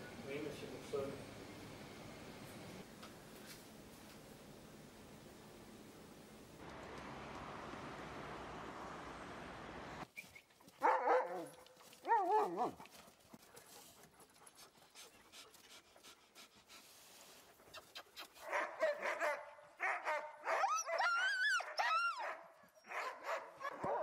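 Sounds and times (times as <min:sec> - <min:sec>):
steady outdoor hum: 0:00.0 - 0:10.1
dogs yelping and barking: 0:17.8 - 0:24.0.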